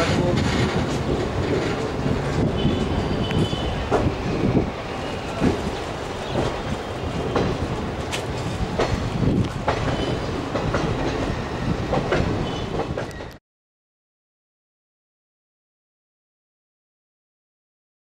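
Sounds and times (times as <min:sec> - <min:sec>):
wheels clicking over rail joints: 0:00.0 - 0:04.2, 0:05.2 - 0:13.4
train coach rumbling: 0:00.0 - 0:13.4.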